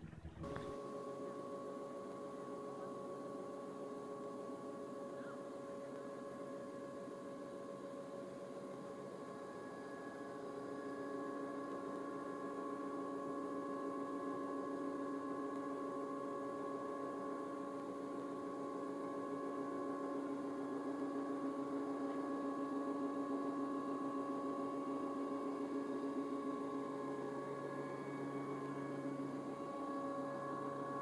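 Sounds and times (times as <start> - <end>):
higher whine: 0.0 - 31.0
ship machinery hum: 25.4 - 31.0.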